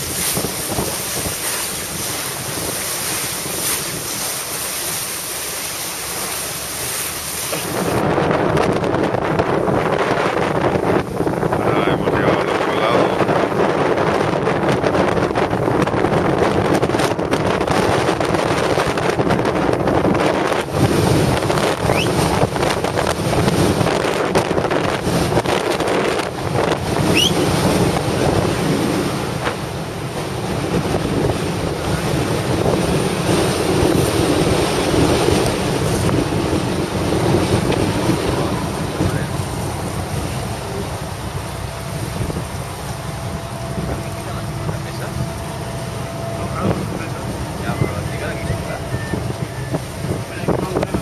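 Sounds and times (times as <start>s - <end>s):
waves against hull: 0.0s - 51.0s
wind buffeting microphone: 0.0s - 51.0s.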